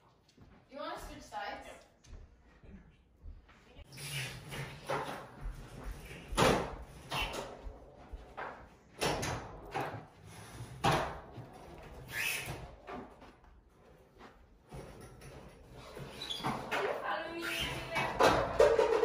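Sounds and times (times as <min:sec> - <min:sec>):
sharp knocks and clacks: 0:17.8 - 0:19.0.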